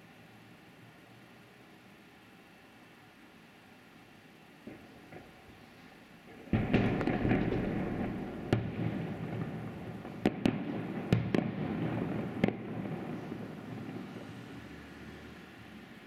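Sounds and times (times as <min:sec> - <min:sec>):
fireworks crackling: 0:03.6 - 0:16.0
firework shells bursting: 0:06.3 - 0:14.1.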